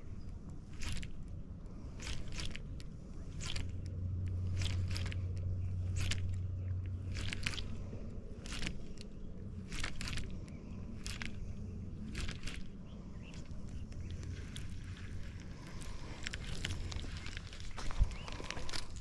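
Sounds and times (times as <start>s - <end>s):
crackling scrapes: 0.0s - 19.0s
fishing reel cranking: 0.7s - 1.2s, 2.0s - 2.6s, 4.4s - 6.4s, 7.1s - 7.8s, 8.4s - 10.4s, 11.0s - 11.4s, 12.1s - 12.7s.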